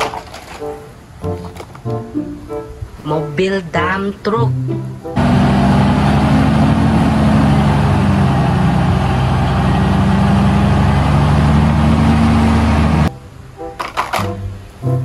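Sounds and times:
rushing noise: 5.0s - 13.3s
truck engine running: 5.2s - 13.1s.

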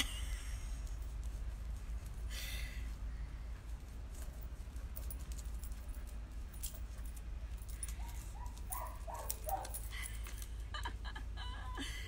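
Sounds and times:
metallic jingling: 4.1s - 10.7s.

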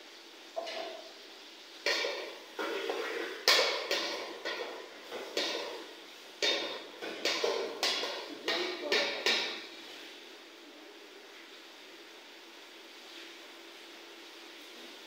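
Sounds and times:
metal spoon scraping a metal pot: 6.4s - 9.6s.

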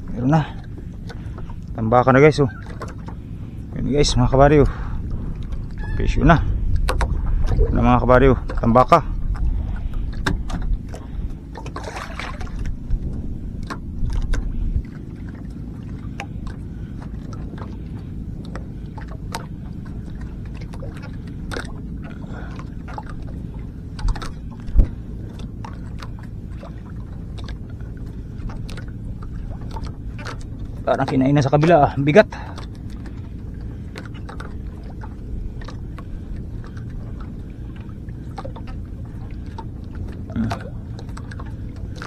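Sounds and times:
steady low rumble: 0.0s - 42.0s
knocks and taps on boat hull: 6.7s - 7.2s, 10.1s - 11.1s.

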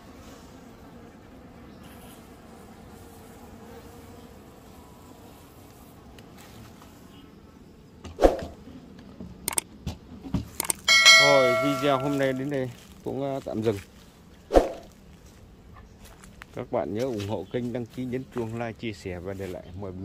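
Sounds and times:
bees humming: 0.0s - 8.8s, 10.8s - 12.5s
sharp clicks: 9.5s - 9.7s, 10.6s - 10.9s.

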